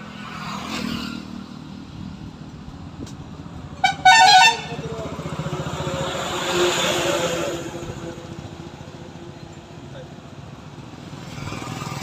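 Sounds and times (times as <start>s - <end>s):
vehicle passing: 3.4s - 9.3s.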